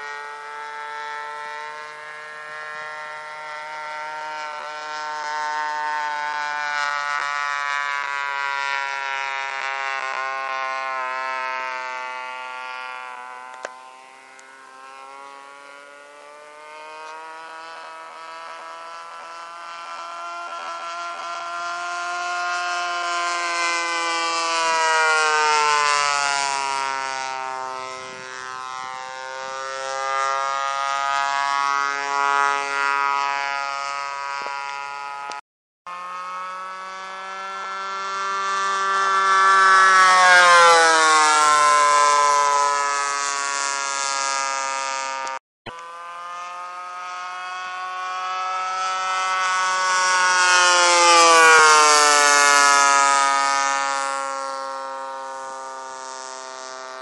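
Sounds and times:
model airplane engine whining: 0:00.0 - 0:57.0.

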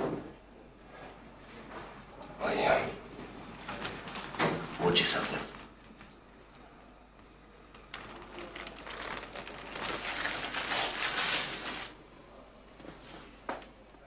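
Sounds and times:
cellophane crinkling: 0:03.6 - 0:06.1, 0:07.7 - 0:12.0.

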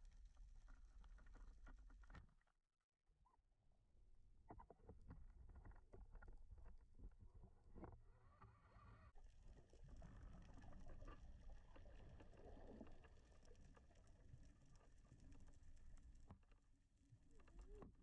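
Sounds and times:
faint underwater rumble: 0:04.1 - 0:18.0.

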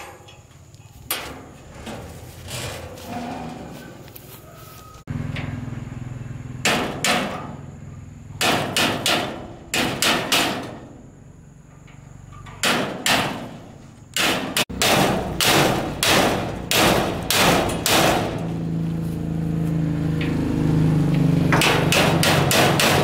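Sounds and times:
hammer striking metal hinge: 0:06.6 - 0:07.6, 0:08.4 - 0:10.9, 0:12.3 - 0:18.5, 0:21.5 - 0:23.0.

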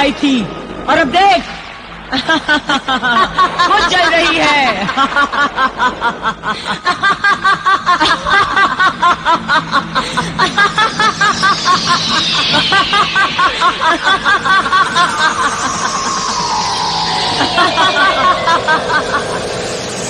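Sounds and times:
person laughing: 0:04.8 - 0:16.5
falling whistling glide: 0:10.0 - 0:20.0.

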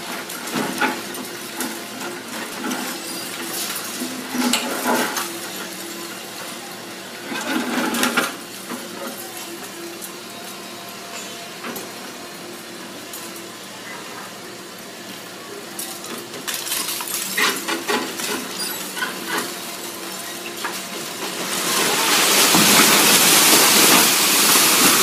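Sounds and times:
rubble crashing and clattering: 0:16.2 - 0:25.0.

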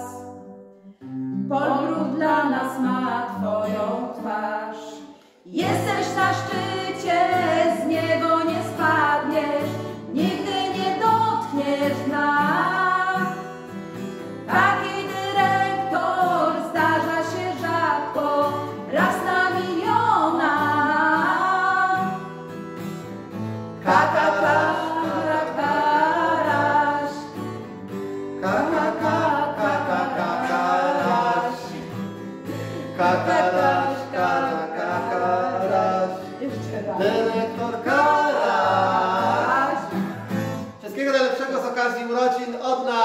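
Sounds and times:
strummed acoustic guitar: 0:00.0 - 0:04.3, 0:05.1 - 0:40.9
women singing together: 0:01.5 - 0:13.4, 0:14.5 - 0:22.2, 0:23.8 - 0:27.4, 0:28.4 - 0:32.0, 0:32.9 - 0:40.2.

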